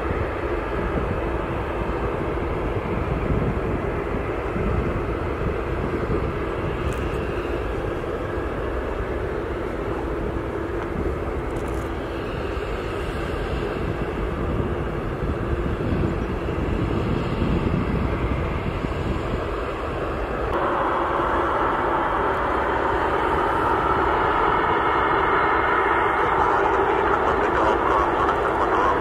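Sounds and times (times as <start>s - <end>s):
high engine whine: 0.0s - 29.0s
jet engine rumble: 0.0s - 29.0s.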